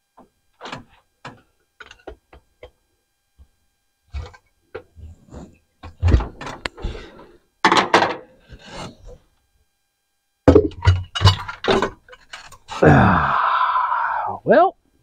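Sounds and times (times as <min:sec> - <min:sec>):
metal parts clunking and scraping: 0:07.6 - 0:09.0, 0:10.5 - 0:12.7.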